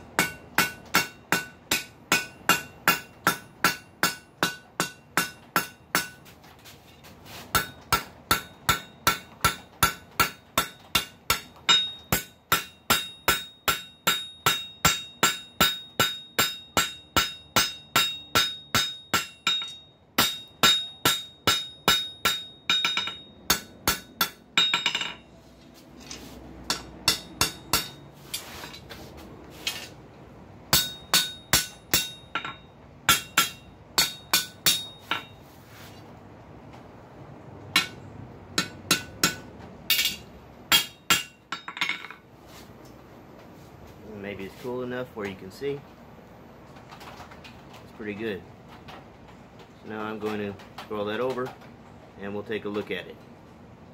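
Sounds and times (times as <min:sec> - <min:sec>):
hammer striking steel on anvil: 0:00.1 - 0:06.3, 0:07.5 - 0:25.3, 0:26.6 - 0:28.4, 0:30.7 - 0:35.4, 0:37.7 - 0:38.0, 0:38.6 - 0:42.2.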